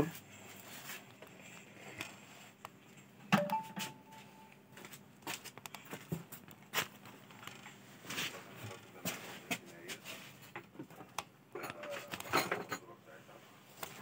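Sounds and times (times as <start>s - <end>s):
brief steady tone: 3.3s - 4.6s.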